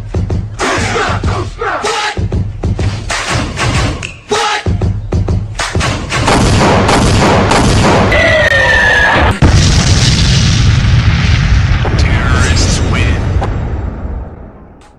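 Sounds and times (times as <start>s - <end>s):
loud dance music: 0.2s - 5.8s
explosion booms: 6.3s - 8.2s, 9.3s - 14.8s.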